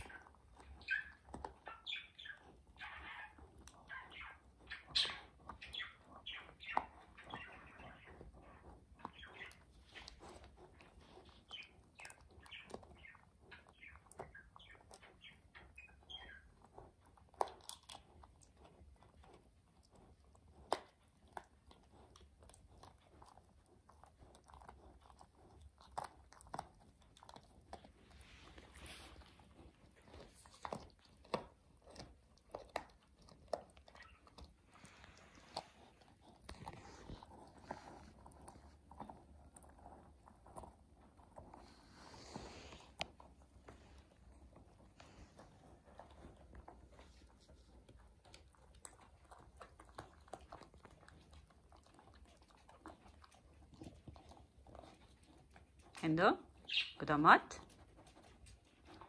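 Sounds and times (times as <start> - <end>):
dog gnawing a bone: 0.0 - 59.0.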